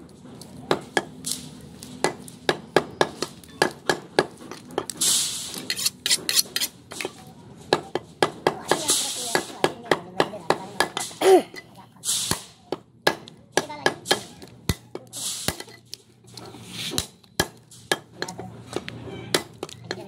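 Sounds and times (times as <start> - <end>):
short hissing noises: 5.0 - 5.9, 12.0 - 12.6, 15.1 - 15.6, 16.6 - 17.0.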